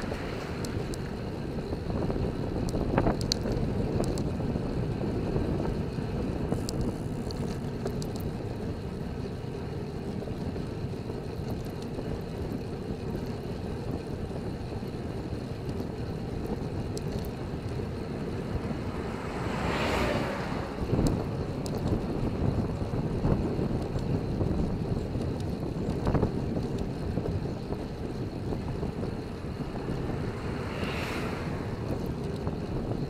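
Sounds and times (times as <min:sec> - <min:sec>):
faint clicks: 0:00.0 - 0:01.1, 0:02.6 - 0:04.3, 0:06.5 - 0:08.4
wind rushing over microphone: 0:00.0 - 0:09.3, 0:10.0 - 0:33.0
bicycle tyre road noise: 0:00.0 - 0:33.0
lorry passing: 0:17.6 - 0:21.4, 0:29.3 - 0:32.8.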